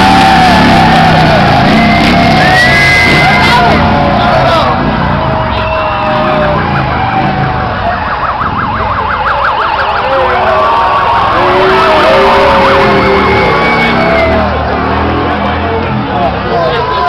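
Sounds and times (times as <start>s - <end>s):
loud street noise: 0.0s - 17.0s
siren sweeping up and down: 5.2s - 15.2s.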